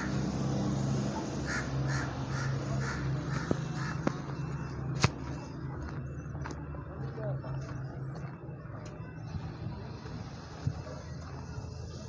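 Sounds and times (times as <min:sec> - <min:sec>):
crow cawing: 0:00.0 - 0:00.2, 0:01.4 - 0:04.0.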